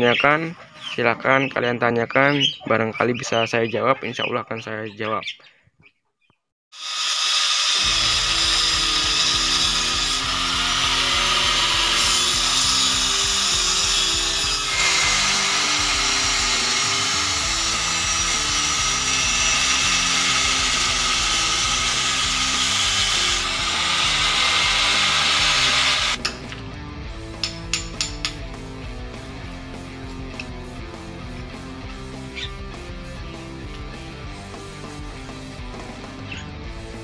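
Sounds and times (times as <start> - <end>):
power tool on steel: 6.7 - 26.3
background music with bass line: 7.9 - 37.0.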